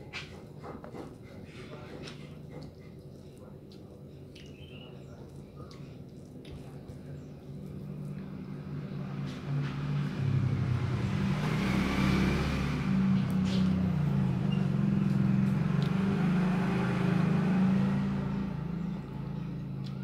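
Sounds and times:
motor engine running: 0:06.6 - 0:20.0.

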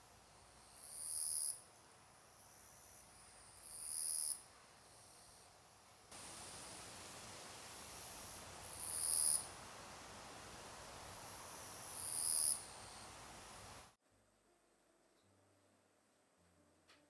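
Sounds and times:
cicadas buzzing: 0:00.0 - 0:13.9.

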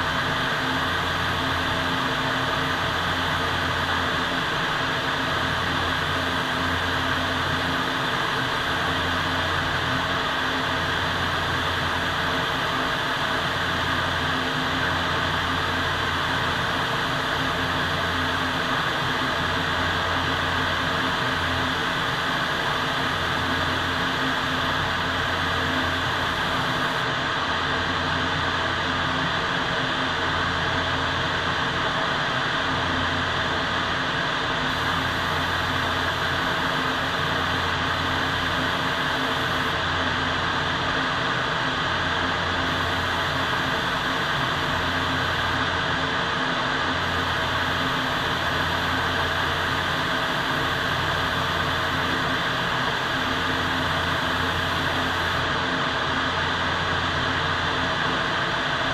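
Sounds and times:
ventilation air rushing: 0:34.7 - 0:39.9.

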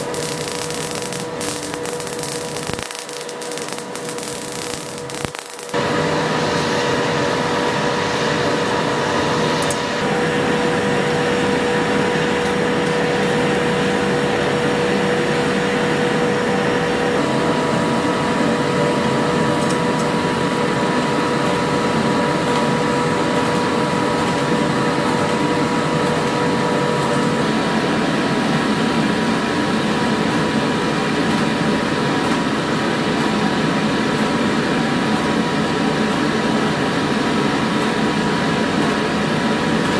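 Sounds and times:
machine hiss: 0:00.0 - 0:06.8
low machine hum: 0:00.0 - 0:25.9.

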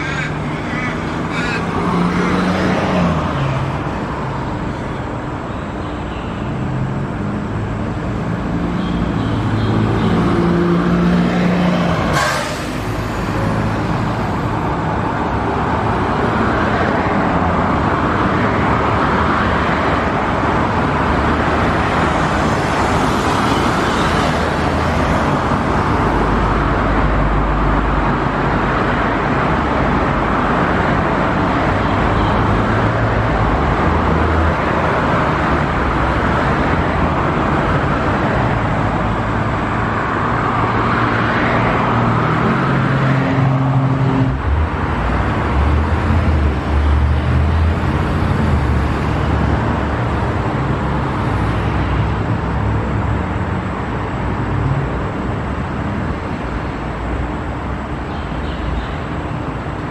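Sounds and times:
heavy road traffic passing: 0:00.0 - 0:59.9.

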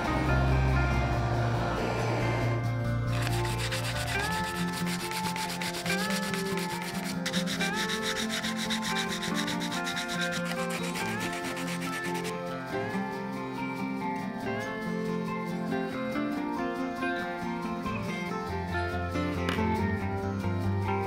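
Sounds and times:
background music: 0:00.0 - 0:21.0
sandpaper rubbing on wood: 0:03.1 - 0:12.4.

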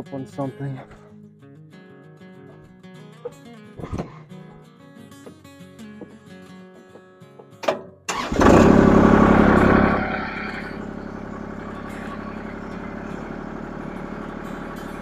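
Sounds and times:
tractor engine starting and idling: 0:07.6 - 0:15.0.

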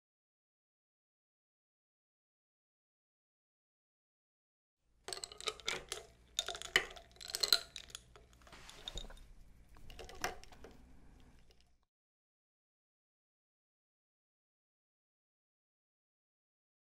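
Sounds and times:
ice cubes clinking against glass: 0:05.1 - 0:09.2
straw stirring rustle: 0:05.1 - 0:11.8.

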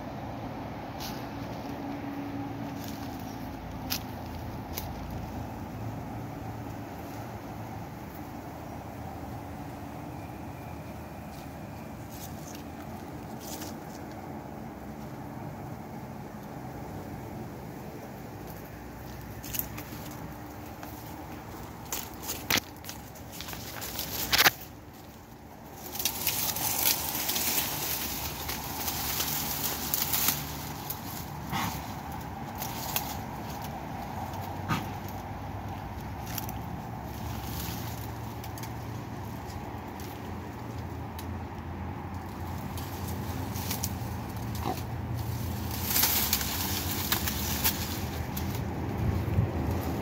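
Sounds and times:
footsteps crunching dry leaves: 0:00.9 - 0:06.2, 0:11.2 - 0:14.4, 0:18.3 - 0:41.5, 0:42.2 - 0:50.0
dog sniffing: 0:31.4 - 0:32.0.

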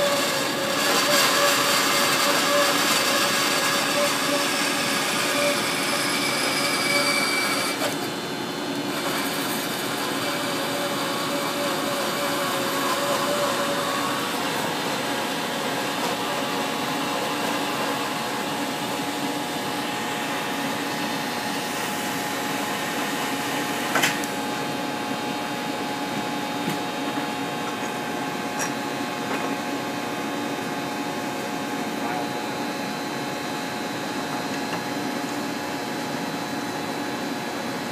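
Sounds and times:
band saw cutting: 0:00.0 - 0:24.8.

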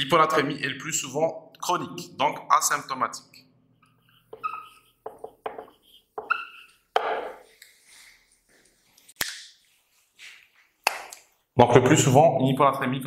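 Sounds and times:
marker squeaking on whiteboard: 0:03.8 - 0:07.5.

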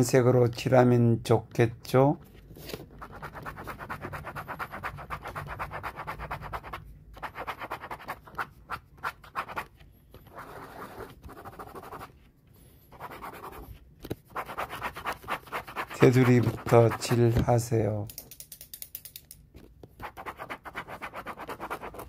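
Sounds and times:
stylus scratching on glass touchscreen: 0:02.8 - 0:12.3, 0:12.9 - 0:17.6, 0:20.0 - 0:22.0.

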